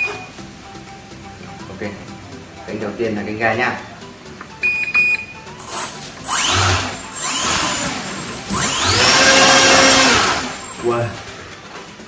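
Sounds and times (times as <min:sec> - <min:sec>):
model plane motor whine: 0:05.7 - 0:11.2.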